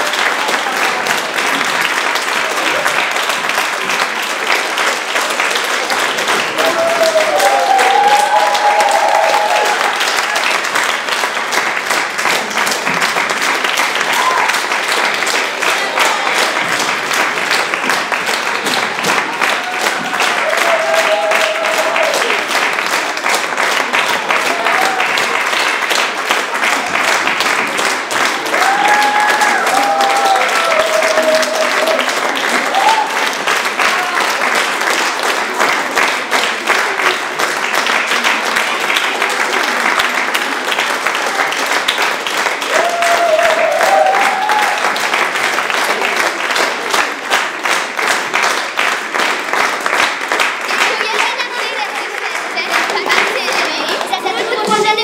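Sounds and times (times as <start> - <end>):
audience clapping: 0.0 - 55.0
cheering calls: 5.3 - 10.9, 13.7 - 16.6, 18.6 - 25.7, 26.4 - 34.7, 39.4 - 47.2.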